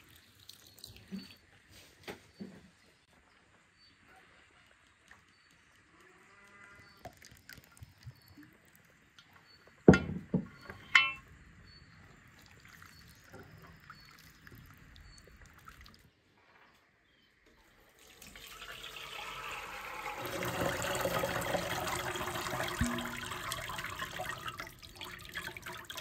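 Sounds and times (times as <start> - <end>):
liquid pouring: 0.0 - 1.3, 7.0 - 9.0, 12.3 - 16.1, 17.8 - 26.0
faint birds chirping: 0.2 - 18.0.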